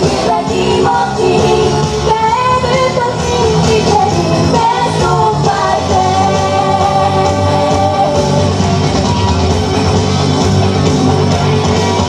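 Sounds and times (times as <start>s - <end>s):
pop-rock song with guitar: 0.0s - 12.0s
girl singing into microphone: 0.4s - 8.2s.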